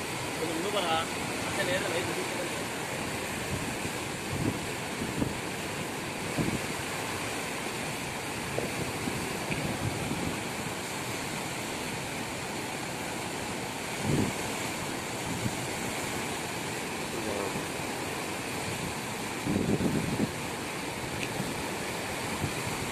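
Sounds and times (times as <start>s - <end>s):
river rushing over a weir: 0.0s - 22.9s
wind thump on microphone: 6.3s - 6.7s, 8.5s - 10.5s, 14.0s - 14.4s, 19.4s - 20.3s.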